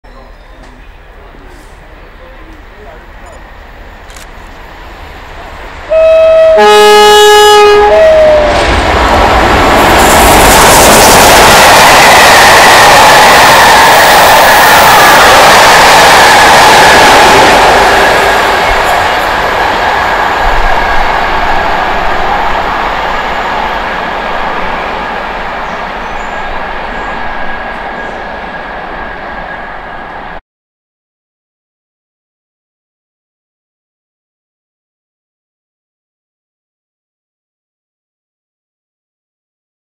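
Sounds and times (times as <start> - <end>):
train passing at speed: 0.1 - 30.4
two-tone train horn: 5.9 - 8.7.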